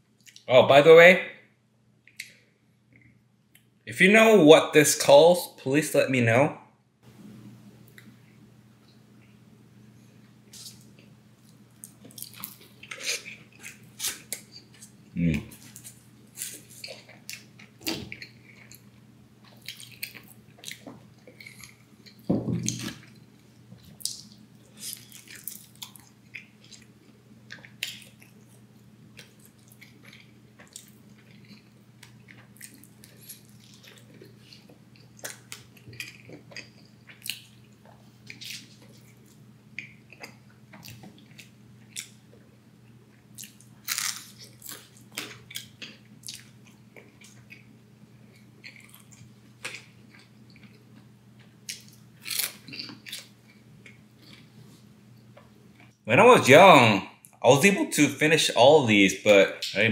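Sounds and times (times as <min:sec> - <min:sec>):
faint low hum: 0:00.0 - 0:59.9
wet chewing with lip smacks: 0:23.8 - 0:42.2.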